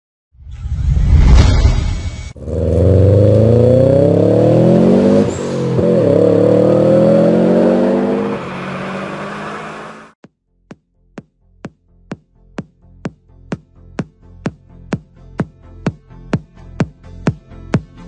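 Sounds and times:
brief whoosh: 0.4 - 2.4
car engine revving up: 2.4 - 10.2.

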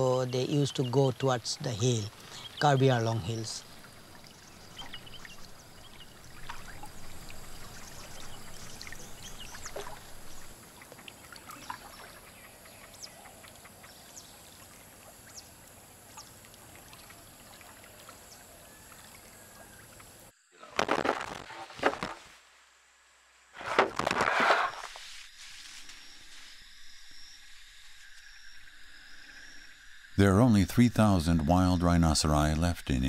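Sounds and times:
faint high insect hiss: 0.0 - 23.6, 24.2 - 33.0
water sloshing and splashing: 2.0 - 22.2.

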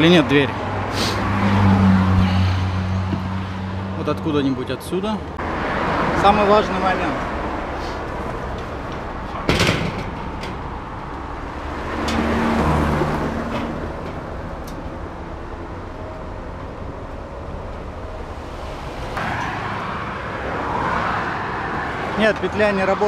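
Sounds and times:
road traffic hum: 0.0 - 23.0
metal gate door bang: 9.4 - 10.8.

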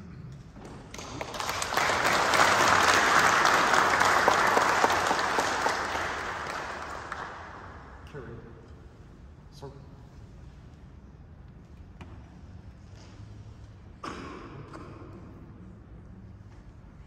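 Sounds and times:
crowd applauding: 0.7 - 8.0.

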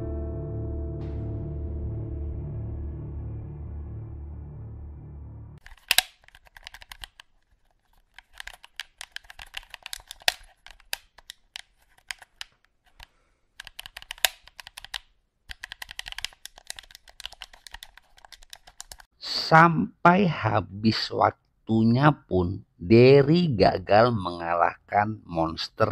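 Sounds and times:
game buttons clicking rapidly: 13.6 - 19.0.

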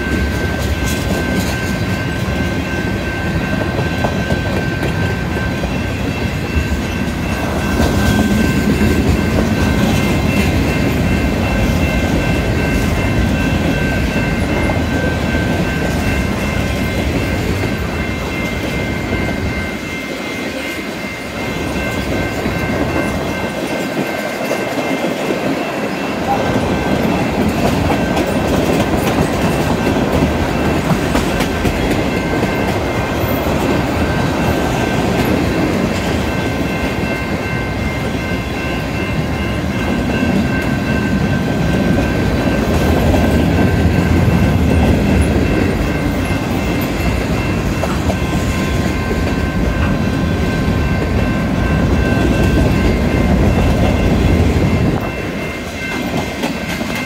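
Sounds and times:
steady high ringing tones: 0.0 - 57.0
train rumble: 0.0 - 57.0
train wheels clicking over rail joints: 26.2 - 37.1.

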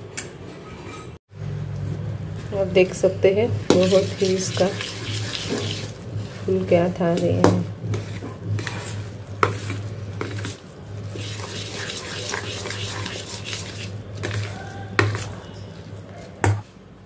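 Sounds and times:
spoon stirring wet batter: 1.8 - 16.8.

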